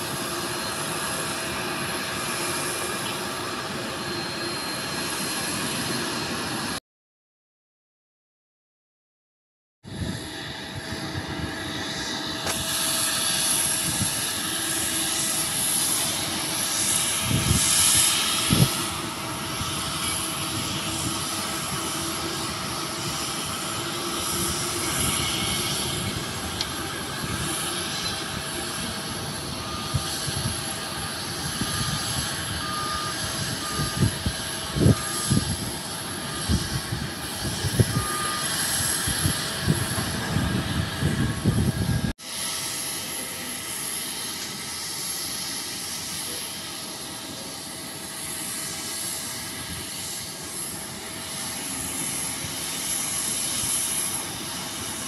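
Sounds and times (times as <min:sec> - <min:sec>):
jet engines running: 0:00.0 - 0:06.8, 0:09.9 - 0:55.0
high whine: 0:09.9 - 0:55.0.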